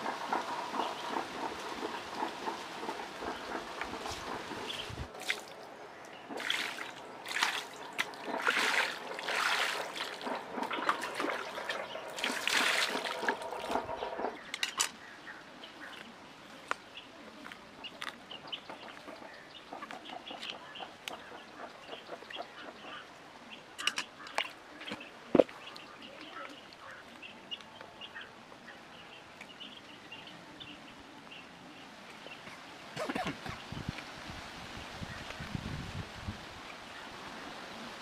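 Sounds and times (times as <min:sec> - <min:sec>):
water pouring and splashing: 0:03.8 - 0:14.3.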